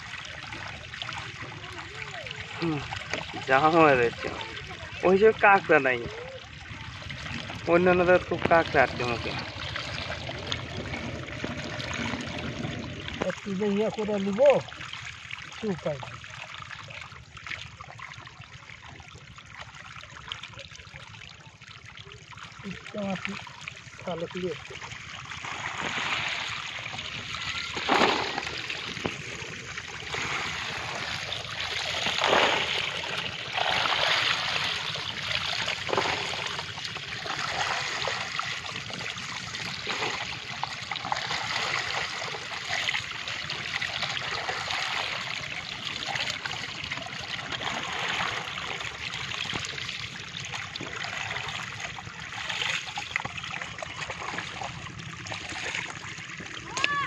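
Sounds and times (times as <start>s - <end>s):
muddy water trickling: 0.0s - 57.0s
water scooped and poured out: 25.3s - 38.3s.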